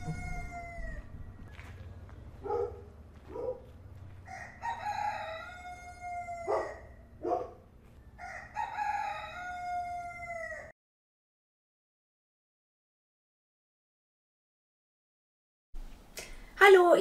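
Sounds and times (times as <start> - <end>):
rooster crowing: 0.0 - 1.2, 4.2 - 7.1, 8.2 - 10.7.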